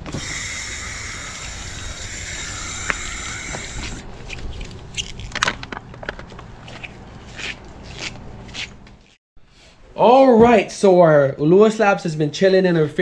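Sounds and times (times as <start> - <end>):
hose nozzle spraying water: 0.0 - 4.0
sharp clicks and handling rustles: 4.2 - 9.1.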